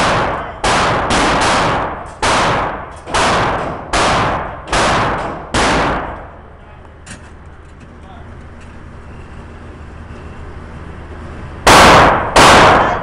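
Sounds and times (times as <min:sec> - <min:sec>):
gunshots echoing indoors: 0:00.0 - 0:06.4, 0:11.6 - 0:13.0.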